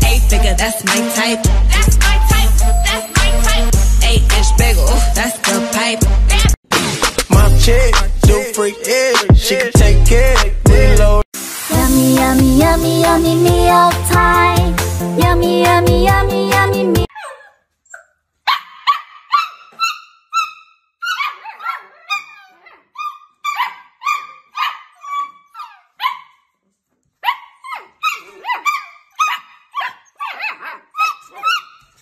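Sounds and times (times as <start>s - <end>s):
puppies yapping: 17.1s - 26.4s, 27.2s - 32.0s.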